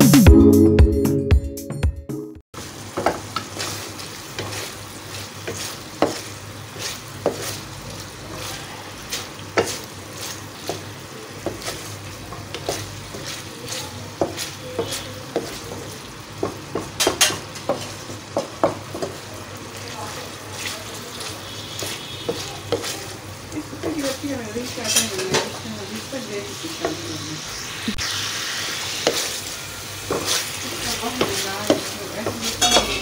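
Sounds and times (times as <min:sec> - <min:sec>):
meat sizzling in oil: 0:02.6 - 0:33.0
wooden spatula knocking on pan: 0:02.9 - 0:03.5, 0:05.4 - 0:06.2, 0:14.1 - 0:19.2, 0:21.8 - 0:23.0, 0:31.0 - 0:33.0.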